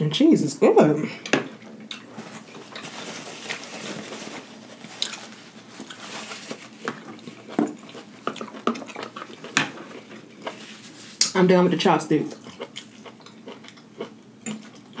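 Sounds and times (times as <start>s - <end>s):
chewing food: 4.8s - 11.4s, 12.3s - 15.0s.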